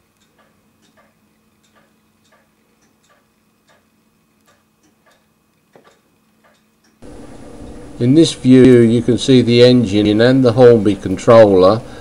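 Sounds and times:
faint light ticks: 0:00.1 - 0:05.3.

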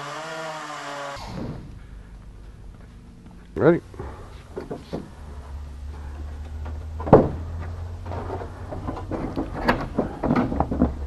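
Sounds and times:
sharp thump: 0:01.2 - 0:01.7
steady low hum: 0:01.2 - 0:11.0
fiberglass cowling knocking and rubbing: 0:04.0 - 0:11.0.

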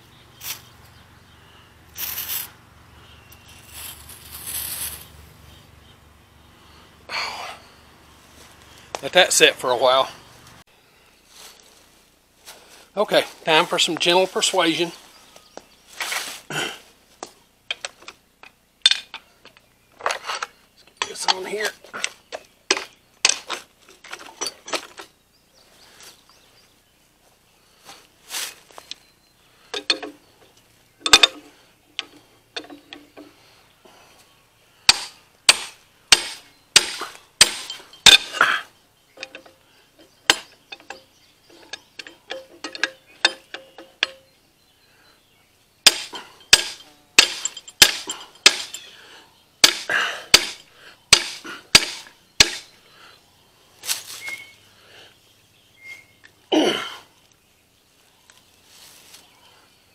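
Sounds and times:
hammer striking metal: 0:34.9 - 0:38.4, 0:45.9 - 0:48.8, 0:49.6 - 0:52.7.

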